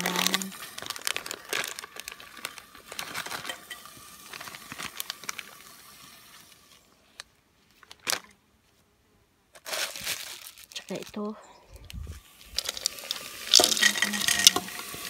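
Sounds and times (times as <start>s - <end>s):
frozen berries tumbling into metal pot: 0.0s - 6.1s, 12.2s - 15.0s
paper packet crinkling: 0.0s - 8.3s, 9.5s - 15.0s.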